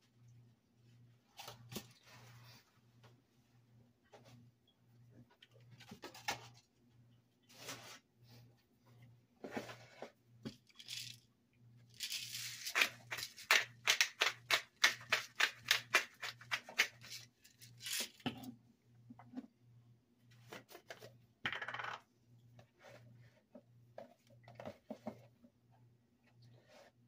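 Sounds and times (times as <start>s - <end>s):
pepper grinder clicking: 12.0s - 17.2s.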